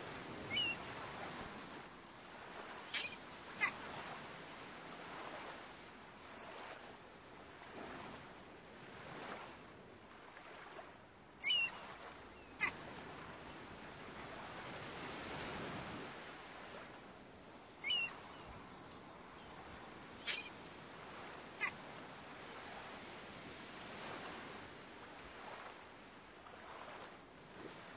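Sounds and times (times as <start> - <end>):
waves washing in: 0.0 - 27.9
gulls calling: 0.5 - 0.8, 1.5 - 3.9, 11.4 - 11.8, 12.4 - 12.9, 17.8 - 20.7, 21.5 - 21.9.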